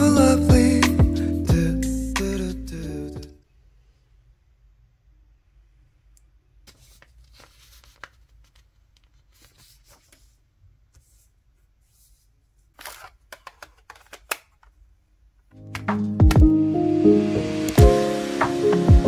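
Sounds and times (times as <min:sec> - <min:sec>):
paper rustling: 0:06.6 - 0:14.7
calculator clicks and taps: 0:15.6 - 0:16.5.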